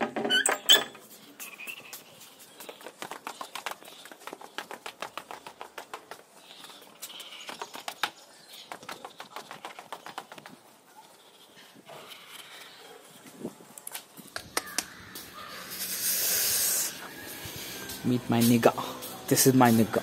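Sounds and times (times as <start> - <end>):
sandal footsteps on concrete stairs: 2.6 - 10.6.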